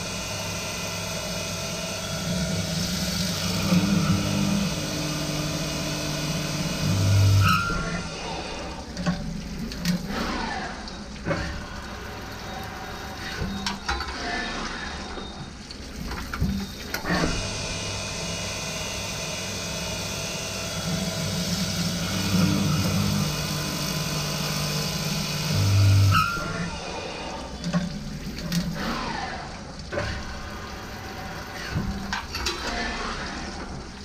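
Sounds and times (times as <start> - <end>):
drilling machine running: 0.0 - 8.8, 16.2 - 27.5
coolant splashing and hissing: 0.0 - 34.0.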